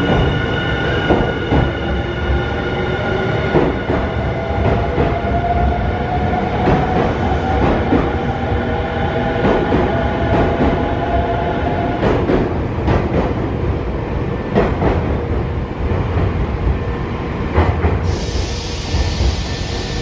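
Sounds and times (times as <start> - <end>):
electric train whine: 18.0 - 20.0.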